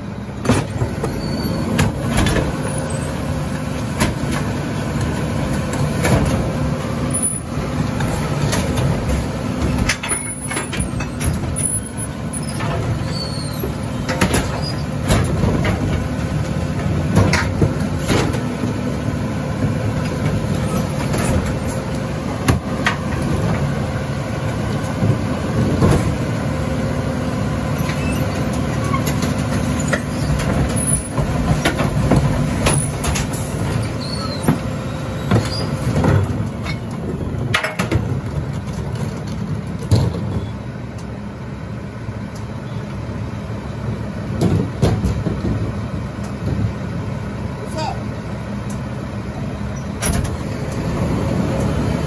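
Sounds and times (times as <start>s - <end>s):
garbage truck engine running: 0.0s - 52.0s
knocks and clanks: 0.4s - 2.6s, 12.5s - 18.5s, 28.8s - 40.5s, 44.4s - 46.8s.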